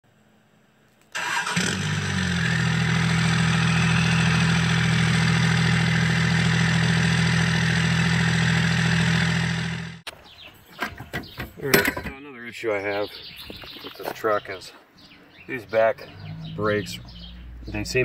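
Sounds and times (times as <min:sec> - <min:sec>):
engine starting and idling: 0:01.1 - 0:10.0.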